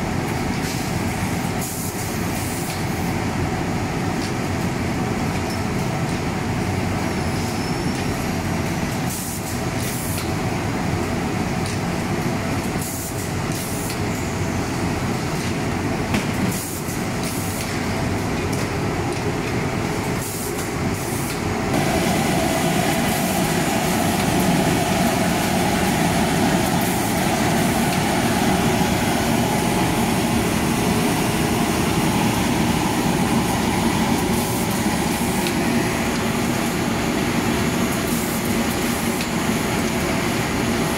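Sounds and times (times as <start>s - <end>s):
steaming machine running: 16.3s - 40.9s
short steam hisses: 20.2s - 36.4s.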